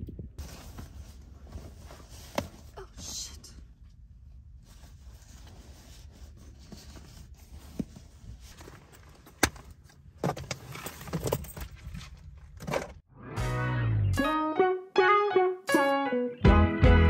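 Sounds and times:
low steady rumble: 0.0s - 9.1s.

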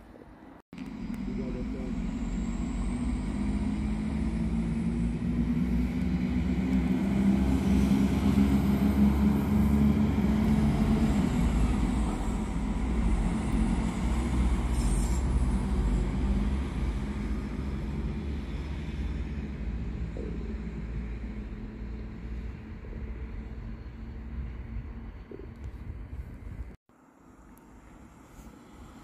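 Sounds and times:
diesel railcar engines humming: 0.4s - 26.6s
wheels rumbling on rails: 0.8s - 26.8s
brief high squeak: 14.7s - 15.4s.

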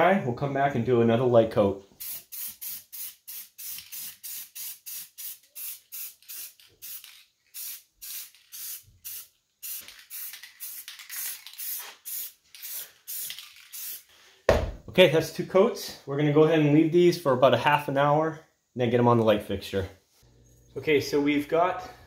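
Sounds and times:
spray paint can bursts: 2.0s - 14.1s.

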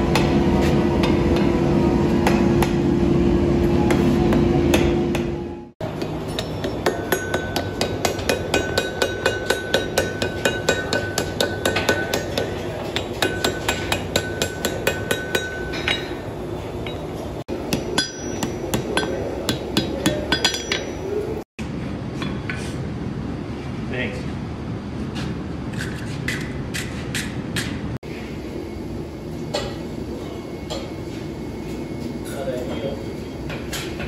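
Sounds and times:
hammer ringing on hot steel: 3.8s - 16.2s, 16.8s - 21.2s.

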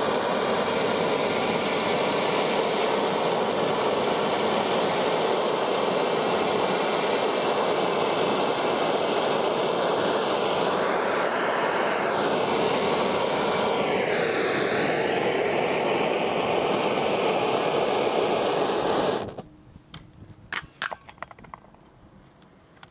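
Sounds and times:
blowtorch flame hissing: 0.0s - 19.5s.

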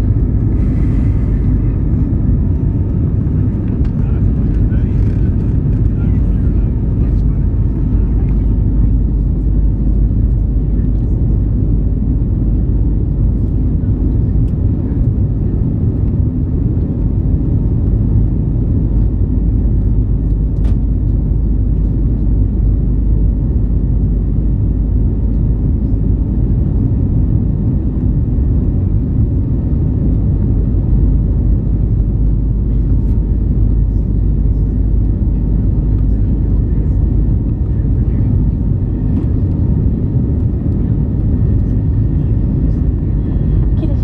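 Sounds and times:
airplane cabin rumble: 0.0s - 44.0s.

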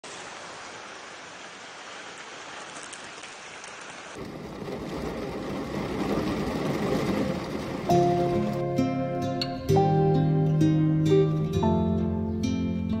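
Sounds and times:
steady rain: 0.0s - 10.3s.

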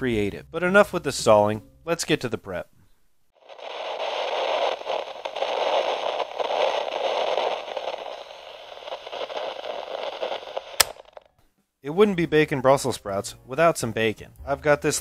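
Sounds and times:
crackling static hiss: 3.3s - 11.3s.

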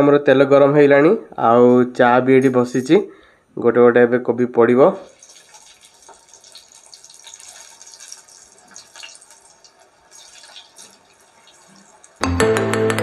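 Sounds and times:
batter deep-frying in hot oil: 5.0s - 12.2s.

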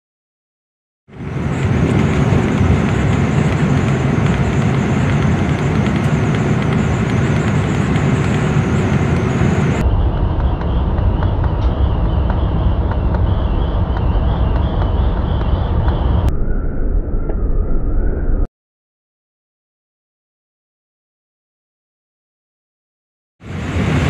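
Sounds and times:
wind buffeting microphone: 1.2s - 16.3s.

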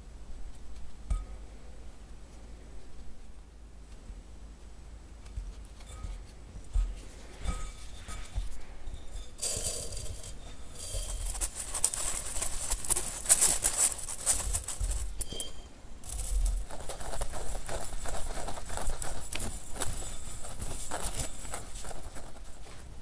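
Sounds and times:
hands rubbing flour in bowl: 5.4s - 15.3s, 16.0s - 23.0s
flour scratching through wire sieve: 5.8s - 23.0s.

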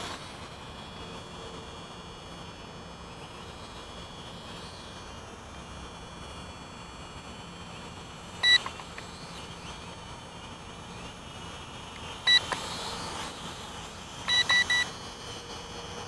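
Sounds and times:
distant drone motors whining: 0.0s - 16.0s
short electronic beep: 14.3s - 14.9s.

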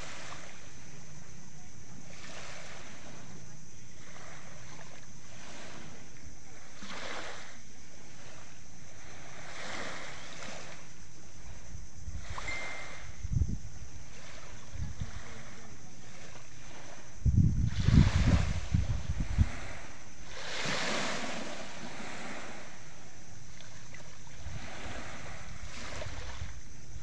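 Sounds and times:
small waves lapping on pebbles: 0.0s - 1.4s, 2.0s - 13.1s, 13.9s - 27.0s
large wave breaking: 17.7s - 22.8s.

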